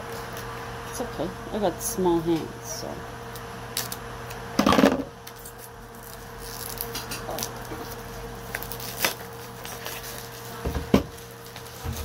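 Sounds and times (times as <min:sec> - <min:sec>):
low steady hum: 0:11.1 - 0:12.0.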